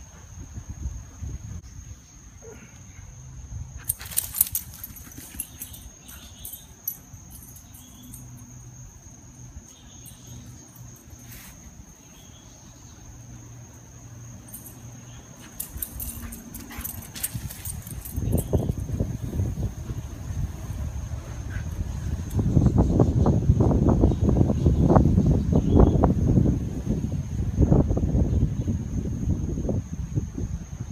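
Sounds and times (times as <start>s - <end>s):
light clicks and rustles: 3.8s - 8.3s, 15.4s - 18.7s.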